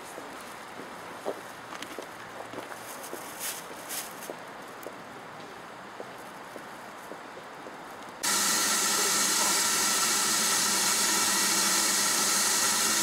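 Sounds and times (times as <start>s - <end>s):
steam hissing with whistle: 8.2s - 13.0s.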